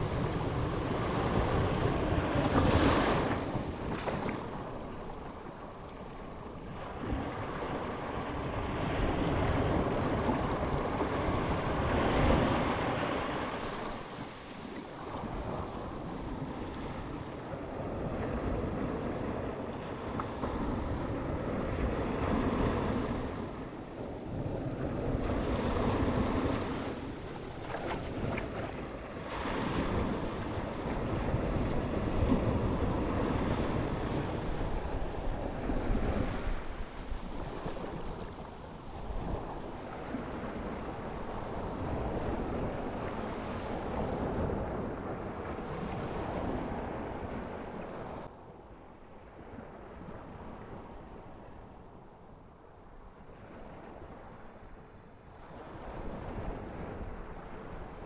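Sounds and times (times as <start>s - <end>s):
waves breaking and washing in: 0.0s - 58.0s.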